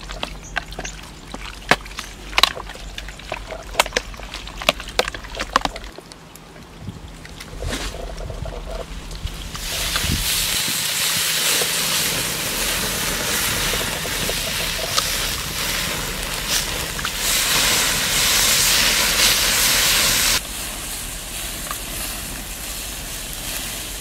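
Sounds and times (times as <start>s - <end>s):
meat sizzling on a grill: 9.6s - 24.0s.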